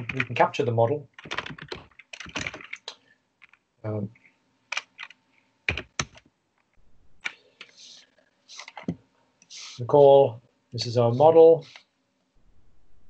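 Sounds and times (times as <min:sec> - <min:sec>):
computer keyboard typing: 0:00.0 - 0:00.5, 0:01.2 - 0:03.6, 0:04.7 - 0:06.3.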